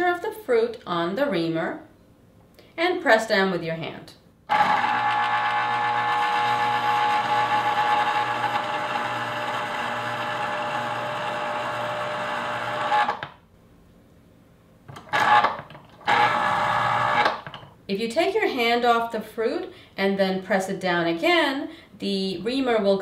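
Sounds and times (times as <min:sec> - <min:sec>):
citrus juicer motor running: 0:04.5 - 0:13.2, 0:15.1 - 0:17.4.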